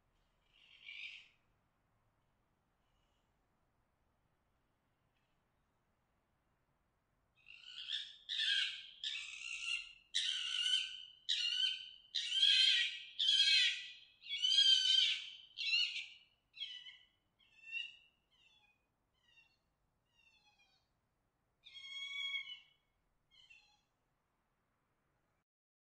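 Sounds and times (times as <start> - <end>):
fox calling: 7.5 - 20.9, 21.6 - 23.9.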